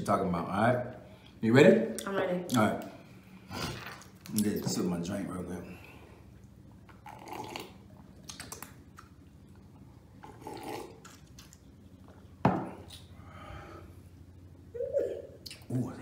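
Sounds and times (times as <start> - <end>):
faint low hum: 0.0 - 16.0
people sipping and slurping drinks: 3.4 - 4.4, 5.8 - 8.8, 9.6 - 13.2.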